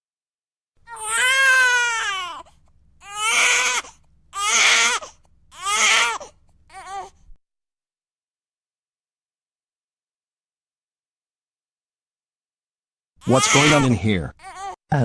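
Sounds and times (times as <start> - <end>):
baby crying: 0.9 - 7.2, 13.2 - 14.8.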